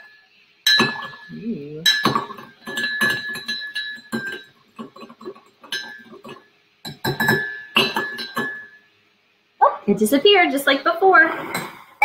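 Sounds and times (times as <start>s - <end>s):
metal spoon clinking in a ceramic mug: 1.9s - 4.5s, 5.6s - 8.8s.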